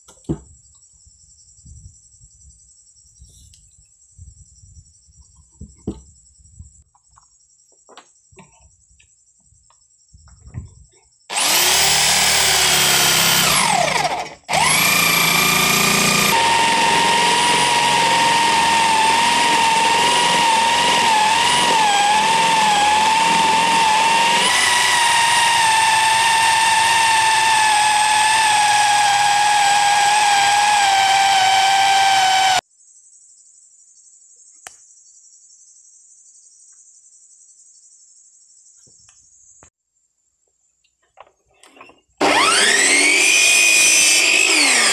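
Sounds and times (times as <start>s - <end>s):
electric drill whining into wood: 11.3s - 32.6s, 42.2s - 44.9s.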